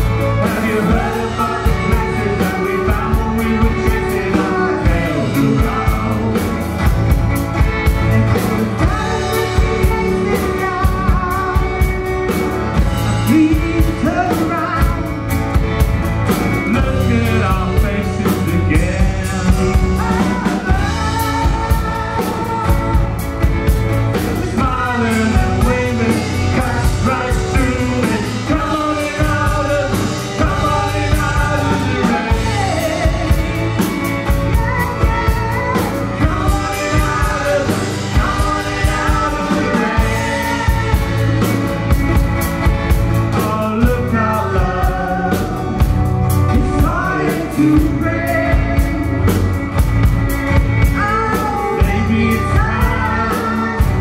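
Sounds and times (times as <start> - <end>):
acoustic guitar: 0.0 - 54.0
drum kit: 0.0 - 54.0
man singing lead: 0.0 - 54.0
woman singing harmony: 8.5 - 12.1, 19.7 - 23.3, 30.5 - 41.6, 50.8 - 54.0.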